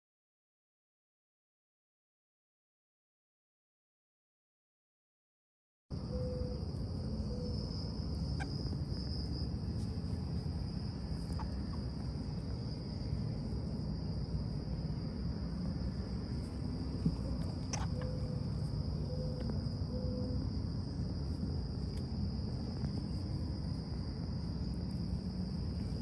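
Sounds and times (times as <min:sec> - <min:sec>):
insects droning: 0:05.9 - 0:26.0
low background rumble: 0:05.9 - 0:26.0.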